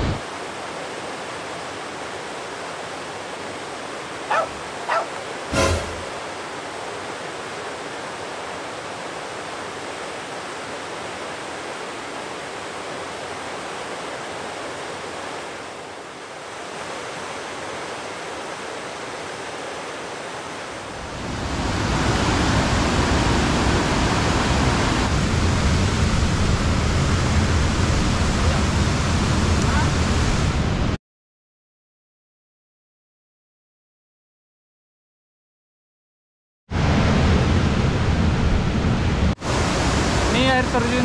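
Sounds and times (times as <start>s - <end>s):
waterfall rushing: 0.0s - 30.8s, 39.4s - 41.0s.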